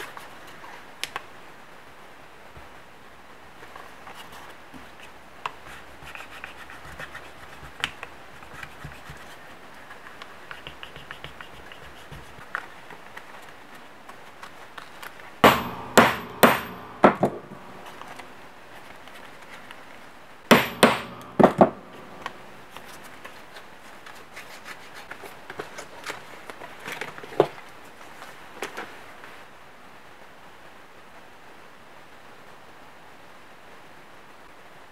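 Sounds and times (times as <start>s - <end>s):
paper scraping and handling: 3.6s - 15.3s, 22.2s - 27.6s
hammer taps on metal: 15.4s - 18.3s, 20.5s - 22.4s.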